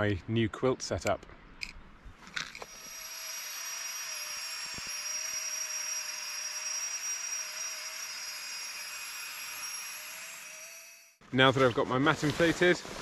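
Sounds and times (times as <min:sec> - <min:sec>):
electric air pump running: 0:02.6 - 0:11.1.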